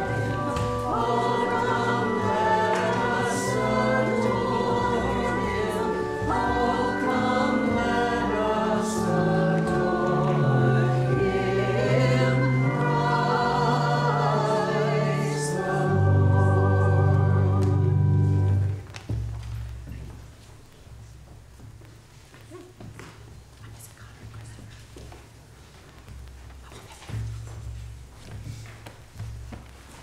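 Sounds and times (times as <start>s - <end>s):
children's choir singing: 0.0s - 18.8s
instrumental accompaniment: 0.0s - 20.0s.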